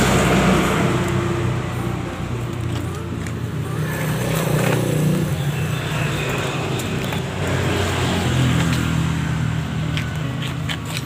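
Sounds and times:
engine humming: 0:00.0 - 0:11.0.

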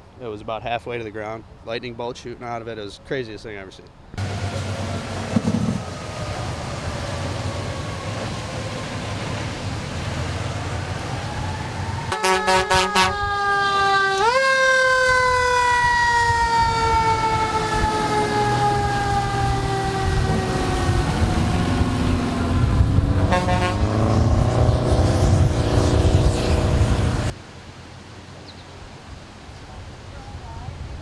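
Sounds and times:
truck engine rumble: 0:04.2 - 0:14.3, 0:14.9 - 0:27.4
fire engine siren winding down: 0:04.2 - 0:27.3
fire engine horn blasts: 0:12.1 - 0:21.8, 0:22.6 - 0:24.2.

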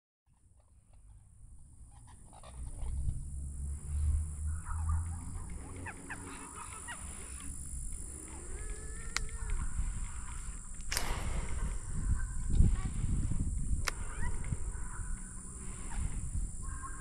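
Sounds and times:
birds calling: 0:00.3 - 0:17.0
low rumble: 0:00.9 - 0:17.0
steady high whine: 0:01.2 - 0:17.0
honking calls: 0:01.9 - 0:17.0.

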